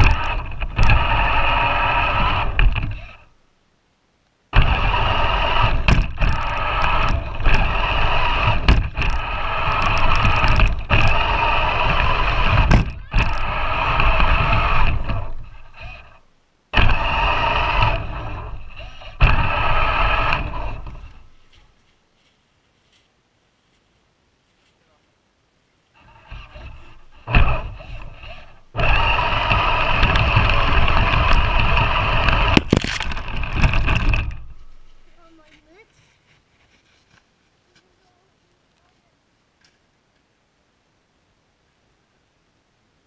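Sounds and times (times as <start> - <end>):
chassis knocks: 0.0 - 3.2, 4.5 - 16.2, 16.8 - 21.4, 26.0 - 35.2
electric motor whining: 0.0 - 3.3, 4.5 - 21.4, 26.0 - 35.4.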